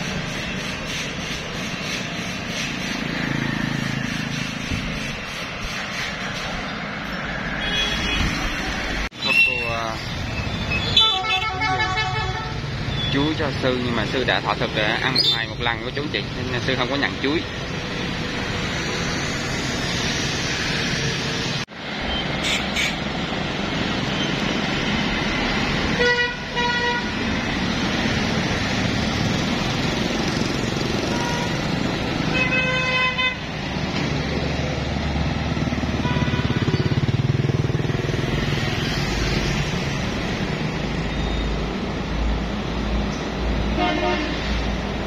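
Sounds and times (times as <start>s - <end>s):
road traffic rumble: 0.0s - 45.0s
vehicle horns honking: 7.6s - 8.4s, 10.7s - 12.8s, 25.9s - 27.2s, 31.0s - 33.5s, 36.0s - 36.9s, 43.7s - 44.6s.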